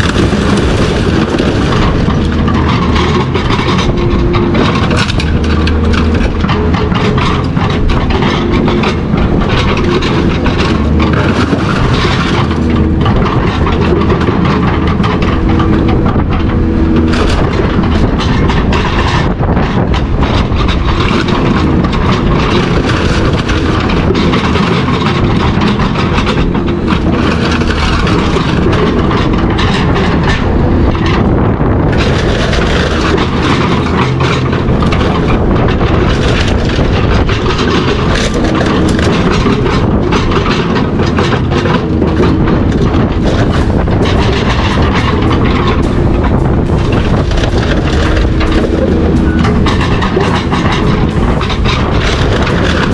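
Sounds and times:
low mechanical drone: 0.0s - 52.9s
metal clanking and rattling: 0.0s - 52.9s.

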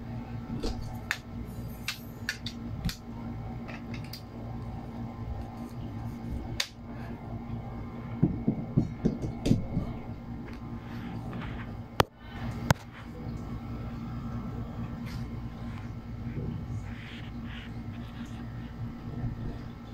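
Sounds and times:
steady low hum: 0.0s - 19.9s
cable handling knocks and rustles: 8.2s - 10.0s.

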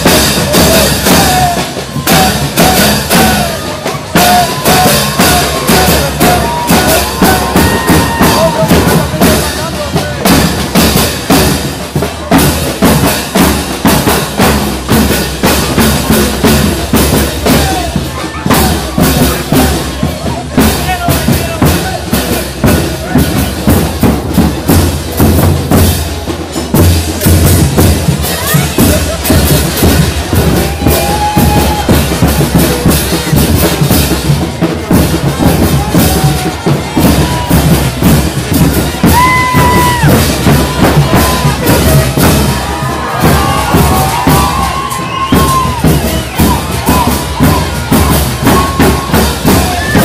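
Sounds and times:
music with steady drumbeat: 0.0s - 50.0s.

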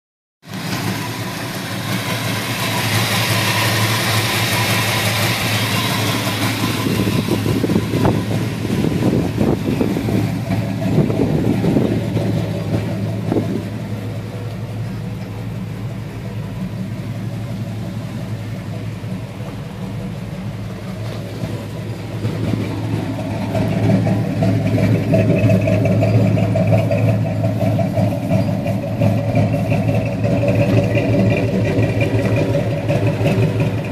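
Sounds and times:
engine idling: 0.4s - 33.9s.

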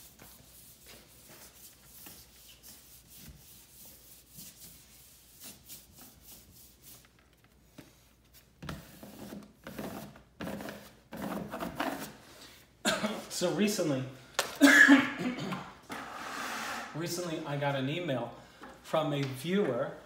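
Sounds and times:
faint rubbing and rustling: 0.0s - 12.2s
person coughing: 12.8s - 13.3s, 14.6s - 15.8s.

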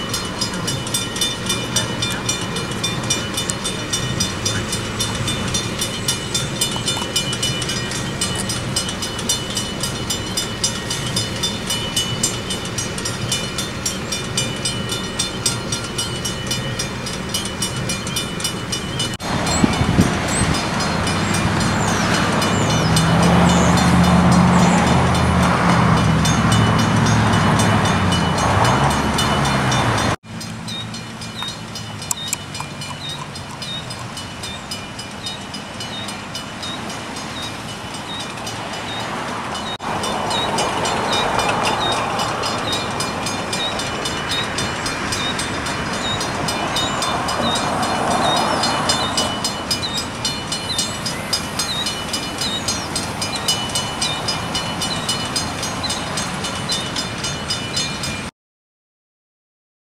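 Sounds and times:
crossing warning bell ringing: 0.0s - 58.3s
road traffic: 0.0s - 58.3s
vehicle engine hum: 0.0s - 58.3s.

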